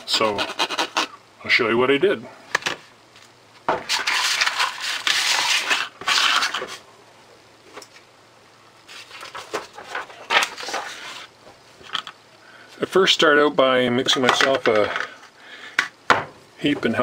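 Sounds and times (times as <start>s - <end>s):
sandpaper rustling and sliding: 3.8s - 6.8s, 8.9s - 11.3s.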